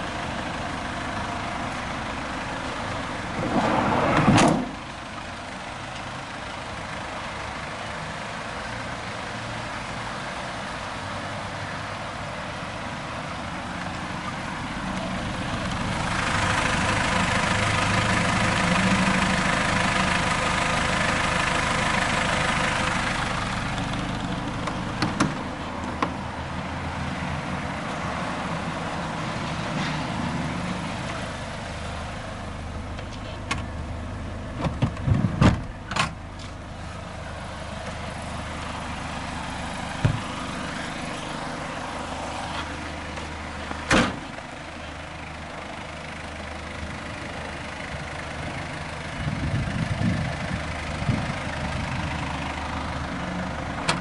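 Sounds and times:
diesel engine idling: 0.0s - 54.0s
sharp knocks and clicks: 24.6s - 26.2s.

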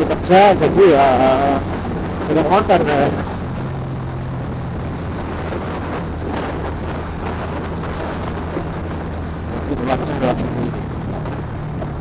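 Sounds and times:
motorcycle engine cruising: 0.0s - 12.0s
wind on microphone: 0.0s - 12.0s.

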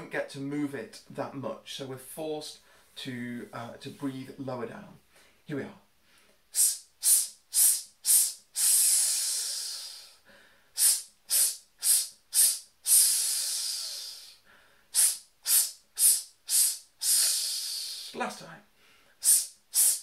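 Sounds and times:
man hissing breaths: 6.1s - 20.0s.

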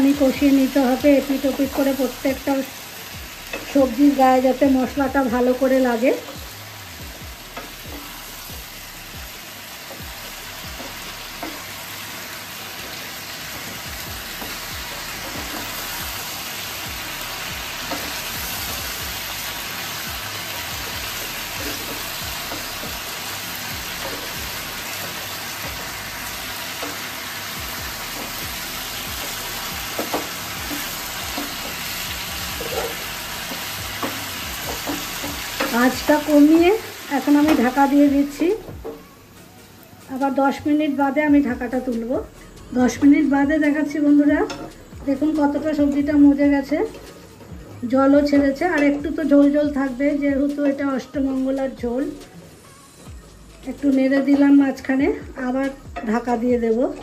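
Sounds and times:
vegetables sizzling in oil: 0.0s - 57.0s
spatula scraping pan: 20.6s - 36.6s
taps against pan: 29.2s - 31.7s.

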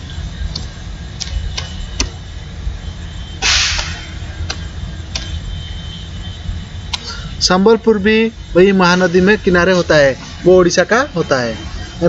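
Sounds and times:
steady low hum: 0.0s - 12.0s
burst of hiss: 3.4s - 4.2s.

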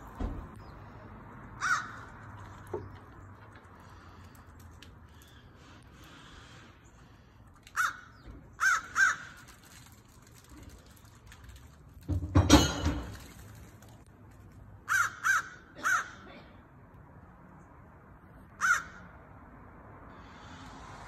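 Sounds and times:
crow cawing: 1.6s - 2.3s, 7.7s - 9.6s, 14.9s - 16.2s, 18.6s - 19.1s.

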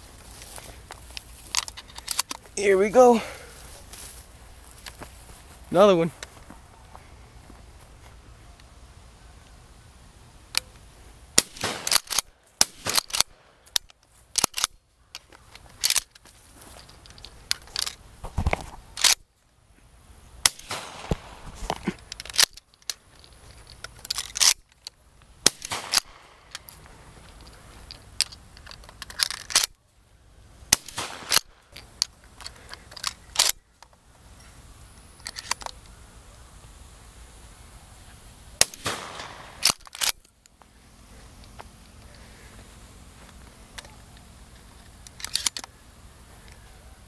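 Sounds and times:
shotgun shots: 11.4s - 13.4s, 20.4s - 21.6s, 25.4s - 26.5s, 30.7s - 31.6s, 38.6s - 39.8s.

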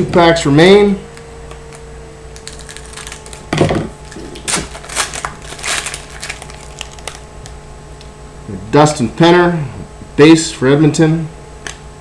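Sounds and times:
foil wrapper crinkling: 1.5s - 7.3s.

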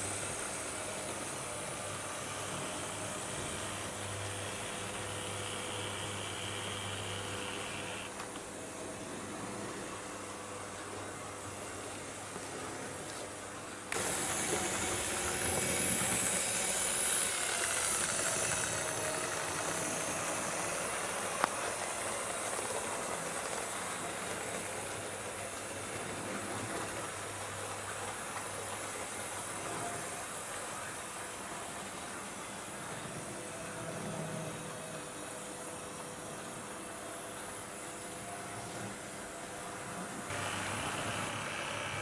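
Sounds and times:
model steam locomotive hiss: 0.0s - 8.1s, 13.9s - 33.2s, 40.3s - 42.0s
model train running on track: 0.0s - 8.1s, 13.9s - 38.4s, 40.3s - 42.0s.

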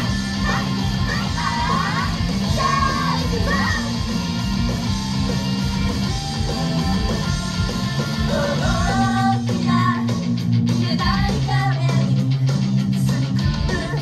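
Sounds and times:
young women singing: 0.0s - 4.0s, 7.2s - 10.1s, 10.8s - 12.2s, 13.1s - 14.0s
strummed electric guitar: 0.0s - 11.3s
bass backing: 0.0s - 14.0s.

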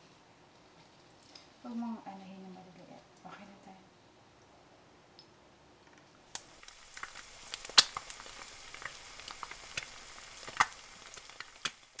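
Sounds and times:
frying sizzle with pops: 6.2s - 12.0s.

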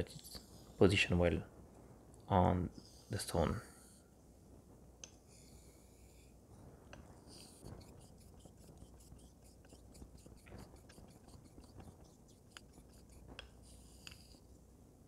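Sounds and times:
light ticks of blade turning: 6.9s - 14.3s
blade scraping on wet whetstone: 7.3s - 13.3s.

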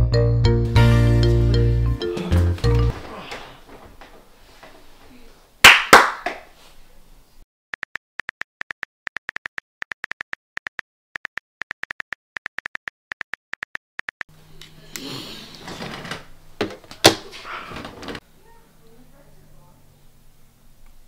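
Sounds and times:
phone keyboard clicks: 7.8s - 14.3s.

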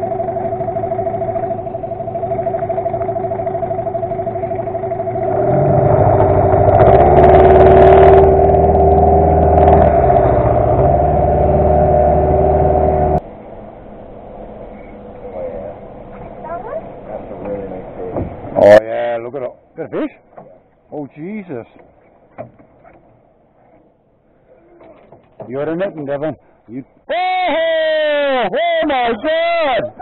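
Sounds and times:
boat motor whining: 0.0s - 13.2s.

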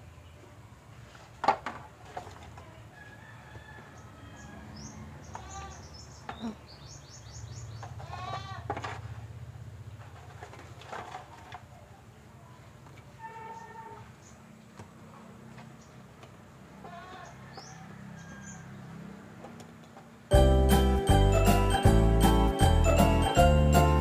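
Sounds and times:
rooster crowing: 2.9s - 5.3s, 17.2s - 19.0s
charcoal lumps clattering: 10.0s - 11.7s.

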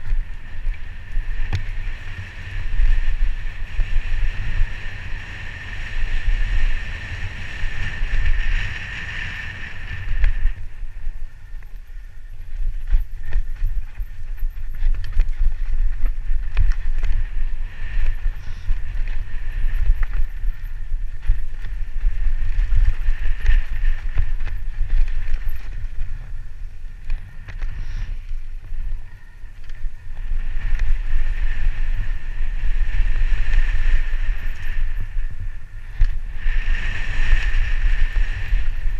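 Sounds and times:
wind rumble on microphone: 0.0s - 38.9s
bike knocks and rattles: 12.6s - 28.7s.

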